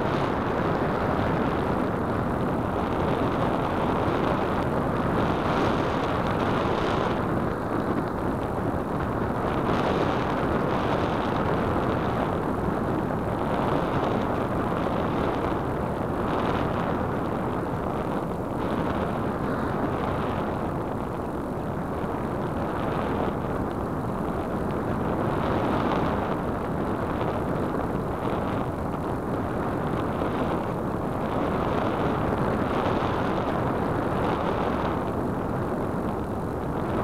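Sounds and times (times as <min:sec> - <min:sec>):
wind rushing over microphone: 0:00.0 - 0:37.0.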